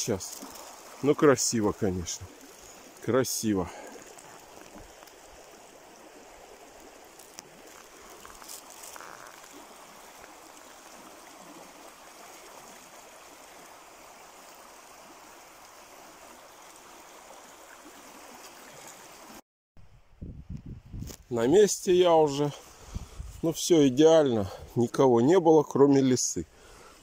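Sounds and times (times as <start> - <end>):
river babbling: 0.0 - 19.4.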